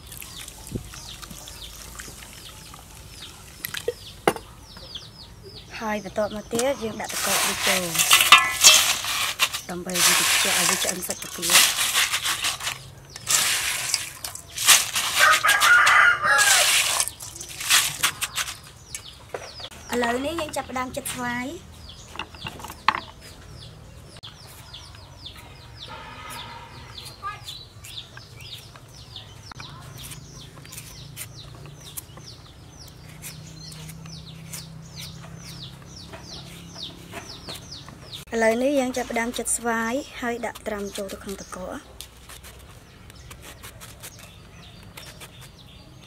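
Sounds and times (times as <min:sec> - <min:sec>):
metal peeler scraping mango: 0:06.2 - 0:19.2, 0:38.4 - 0:45.7
hands rubbing shrimp in water: 0:06.9 - 0:18.7
rooster crowing: 0:15.2 - 0:16.7
chicks peeping: 0:21.8 - 0:38.3.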